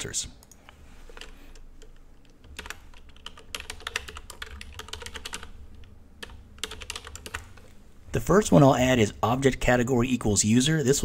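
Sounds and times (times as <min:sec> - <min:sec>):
faint low hum: 0:00.0 - 0:11.0
typing on computer keyboard: 0:00.4 - 0:07.7.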